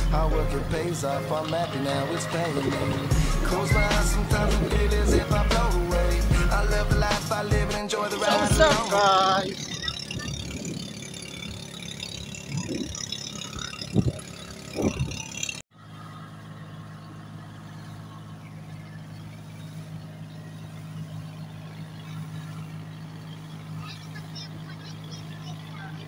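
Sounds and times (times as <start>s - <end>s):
boat motor droning: 0.0s - 26.0s.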